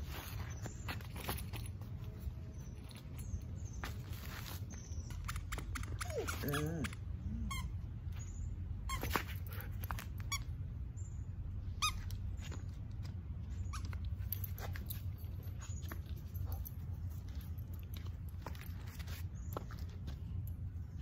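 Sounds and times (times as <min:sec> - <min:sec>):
dog toy squeaks: 0:05.0 - 0:07.8, 0:08.9 - 0:09.3, 0:10.2 - 0:10.5, 0:11.7 - 0:12.6, 0:13.6 - 0:14.4.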